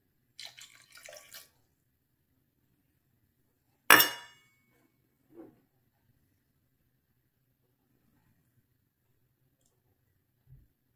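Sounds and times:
liquid pouring into blender jar: 0.4s - 1.6s
metal cup clanking on countertop: 3.9s - 4.4s.

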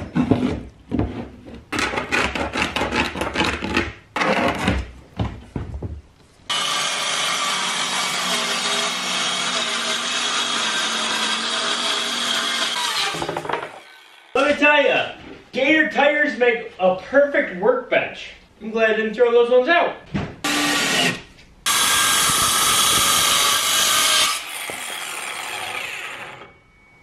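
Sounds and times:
circular saw cutting board: 6.5s - 14.5s, 20.5s - 26.9s.

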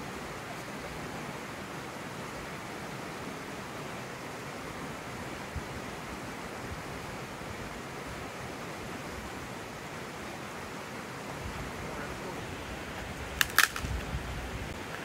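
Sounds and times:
rushing outdoor background noise: 0.0s - 15.0s
sharp clicks: 13.4s - 14.0s.

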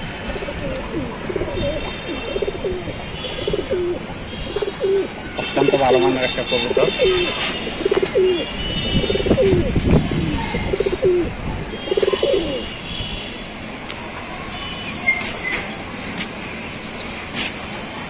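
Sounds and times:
pigeons cooing: 0.2s - 12.7s.

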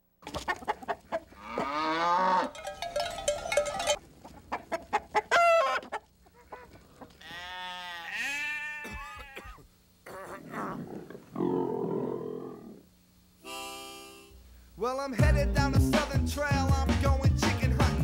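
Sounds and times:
chickens clucking: 0.2s - 1.8s, 2.4s - 7.2s.

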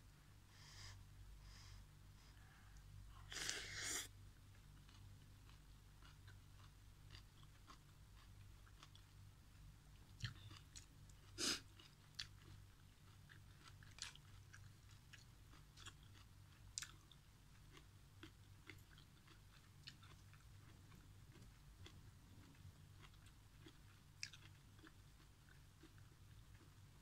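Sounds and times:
low steady hum: 0.0s - 27.0s
quiet chewing: 2.4s - 27.0s.

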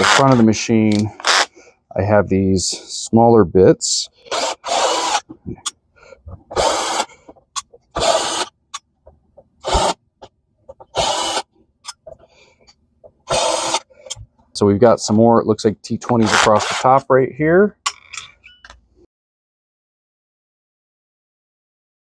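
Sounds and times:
cordless drill running in bursts: 4.3s - 5.2s, 6.6s - 7.1s, 8.0s - 8.5s, 9.6s - 10.0s, 10.9s - 11.4s, 13.3s - 13.9s.

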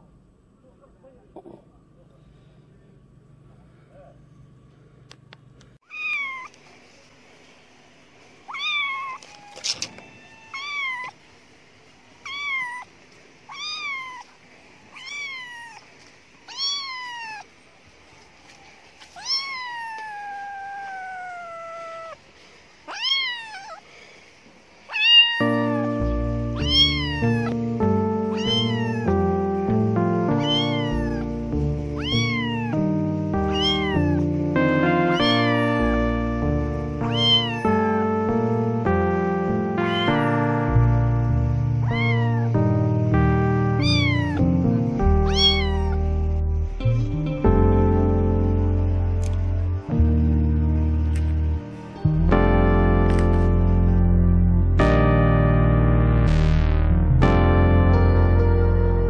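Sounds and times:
kitten meowing: 5.8s - 6.6s, 8.5s - 11.2s, 12.2s - 12.9s, 13.5s - 17.5s, 19.1s - 22.2s, 22.9s - 23.8s, 24.9s - 26.0s, 26.6s - 27.6s, 28.3s - 29.3s, 30.3s - 34.3s, 35.1s - 35.9s, 37.0s - 38.0s, 39.9s - 40.3s, 41.8s - 42.6s, 43.8s - 44.5s, 45.1s - 46.1s
background music: 25.6s - 59.0s.

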